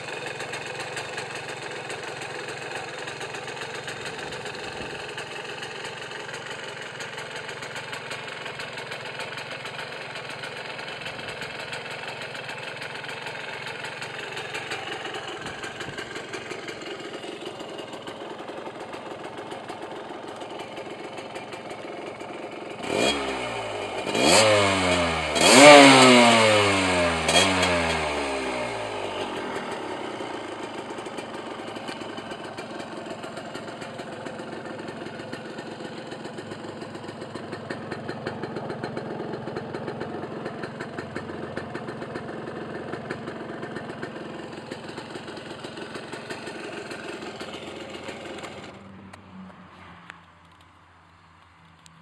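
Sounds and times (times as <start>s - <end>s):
two-stroke motorcycle engine idling: 0.0s - 49.2s.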